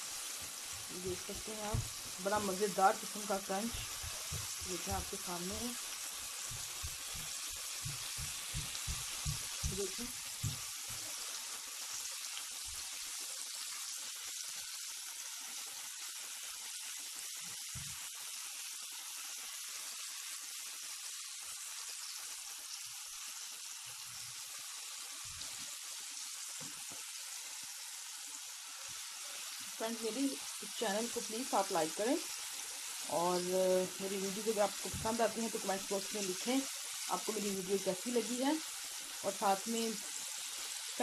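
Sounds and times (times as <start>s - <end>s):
oil sizzling in a pan: 0.0s - 41.0s
soft low thumps: 1.1s - 5.8s, 6.4s - 10.7s.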